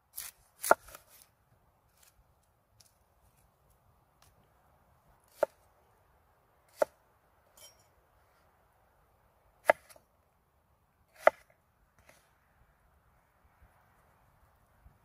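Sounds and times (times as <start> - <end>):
knife chopping onion on wooden board: 5.3 - 5.6, 11.2 - 11.4.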